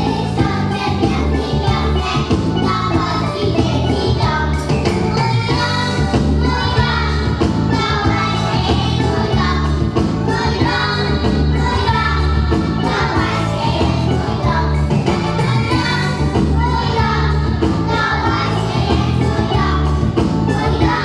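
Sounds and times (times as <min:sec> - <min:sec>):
music with steady beat: 0:00.0 - 0:21.0
young children singing: 0:00.0 - 0:21.0.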